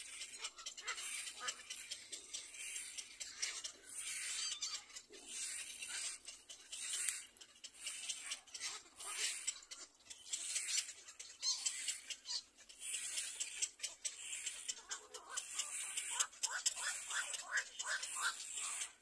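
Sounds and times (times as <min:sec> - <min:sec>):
nestling birds raspy calls: 0:00.0 - 0:19.0
short squeaky bird notes: 0:09.5 - 0:12.5.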